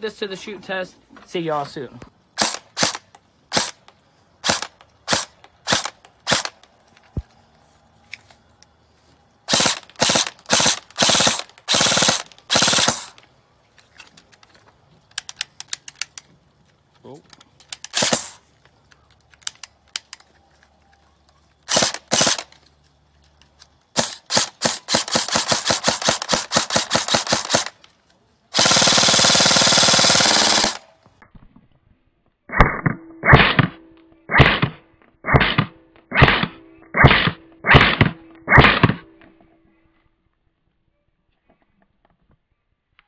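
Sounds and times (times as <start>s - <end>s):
airsoft rifle shots: 2.4s - 3.8s, 4.4s - 6.6s, 9.5s - 13.2s, 17.8s - 18.4s, 21.7s - 22.5s, 23.9s - 27.8s, 28.5s - 31.0s, 32.5s - 39.1s.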